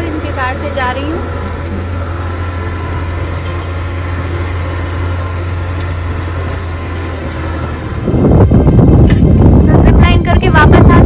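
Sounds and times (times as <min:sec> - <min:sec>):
car engine running: 0:00.0 - 0:11.0
tyre and road noise: 0:00.0 - 0:11.0.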